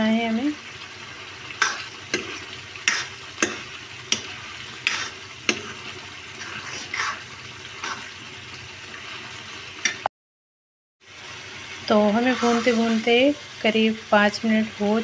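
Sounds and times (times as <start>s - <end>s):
food sizzling: 0.0s - 10.1s, 11.0s - 15.0s
spatula scraping a pan: 1.6s - 8.3s, 12.0s - 13.2s.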